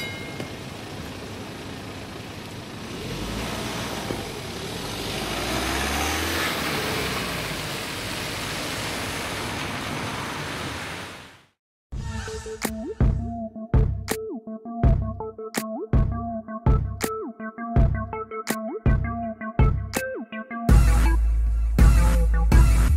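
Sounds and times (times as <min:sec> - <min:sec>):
tyres hissing on wet asphalt: 0:00.6 - 0:11.5
car engine passing: 0:00.9 - 0:11.1.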